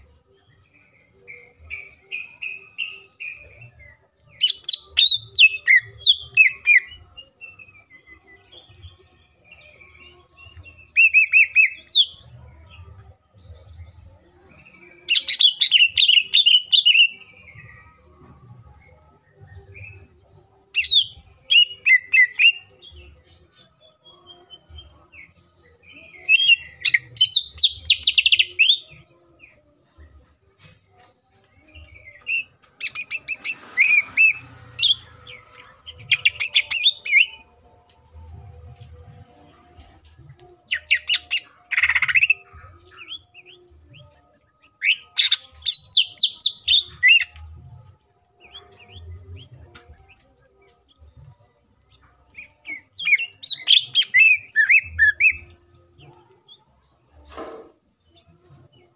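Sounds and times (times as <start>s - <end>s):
bird singing high chirping phrases: 0.0s - 17.9s, 31.4s - 37.6s, 40.4s - 57.2s.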